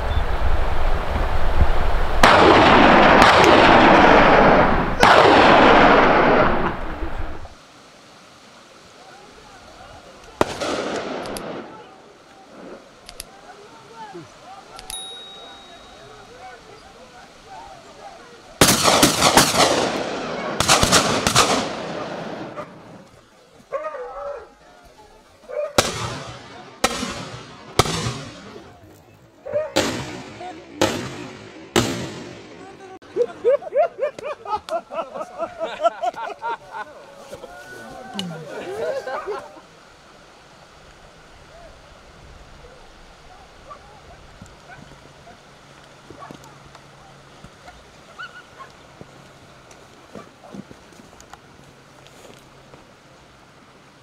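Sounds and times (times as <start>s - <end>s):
gunshots with rolling echo: 2.2s - 6.9s, 10.4s - 11.8s, 18.6s - 22.6s.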